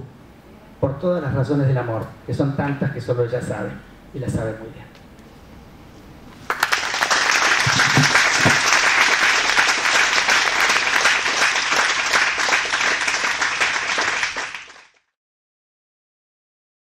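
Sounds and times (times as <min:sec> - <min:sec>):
audience clapping: 0:06.4 - 0:15.1.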